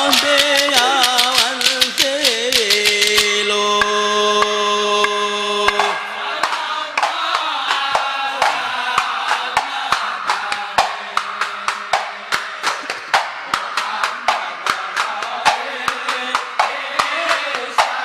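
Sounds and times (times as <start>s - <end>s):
men chanting together: 0.0s - 18.0s
sharp percussion strikes: 0.0s - 18.0s.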